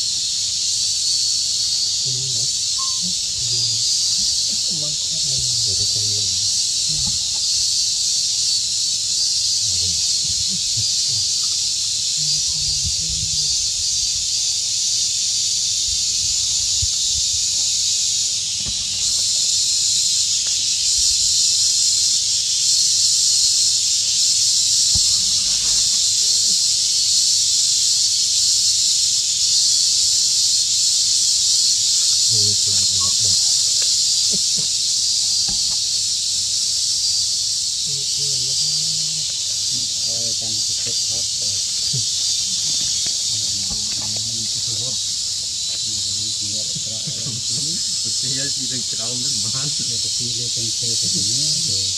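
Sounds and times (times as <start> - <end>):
high-pitched insect chorus: 0.0 - 51.9.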